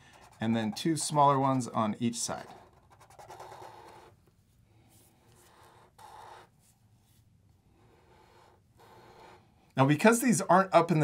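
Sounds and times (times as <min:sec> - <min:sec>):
marker scratching on paper: 0:00.0 - 0:04.2, 0:05.0 - 0:07.2, 0:07.9 - 0:09.4.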